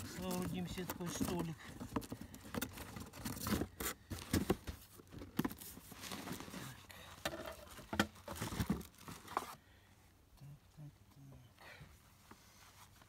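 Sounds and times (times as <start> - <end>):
plastic wrapping crinkling: 0.0 - 6.8, 7.4 - 9.6
cardboard box rustling: 0.0 - 9.6.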